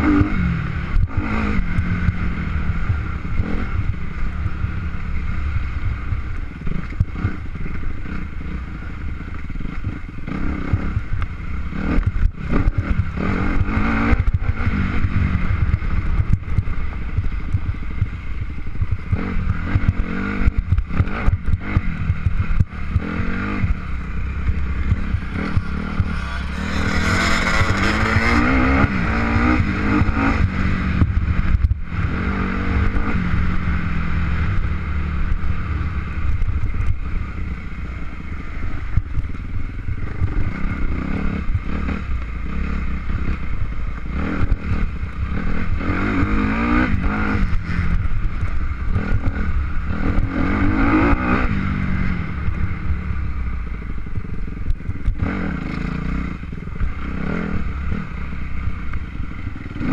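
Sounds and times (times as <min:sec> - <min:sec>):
engine revving under load: 0:11.7 - 0:15.6, 0:19.1 - 0:34.4, 0:44.0 - 0:48.0, 0:48.9 - 0:52.6, 0:59.6 - 0:59.9.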